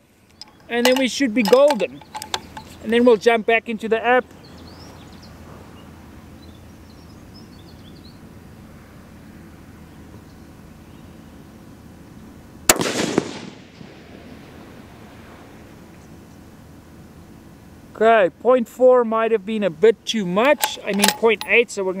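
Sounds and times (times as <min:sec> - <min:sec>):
rifle shot with echo: 0:12.7 - 0:14.3.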